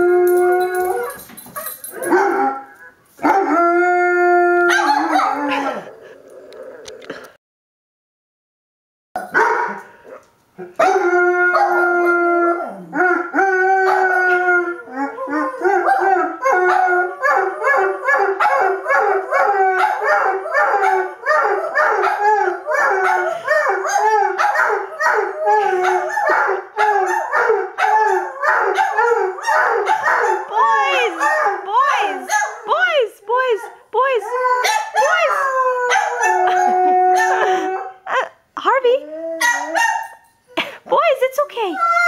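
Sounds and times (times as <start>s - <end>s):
dog howling: 0.0s - 1.2s, 1.9s - 7.0s, 10.7s - 32.7s, 34.3s - 38.2s, 39.0s - 40.1s.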